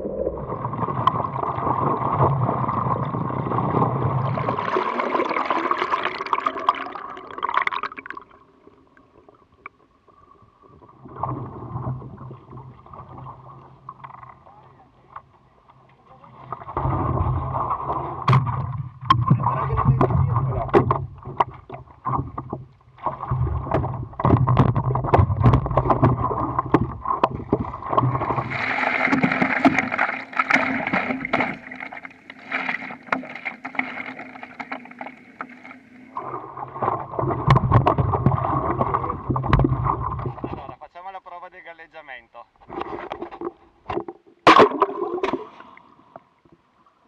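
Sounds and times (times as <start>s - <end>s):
water sloshing against board: 16.2s - 40.7s
paddle strokes splashing: 23.0s - 40.6s.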